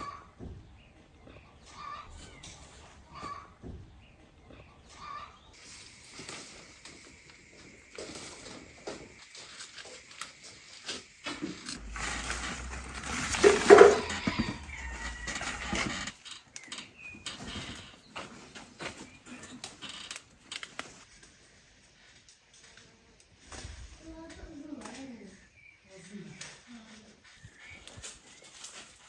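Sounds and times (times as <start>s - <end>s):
leaves rustling: 5.6s - 16.1s.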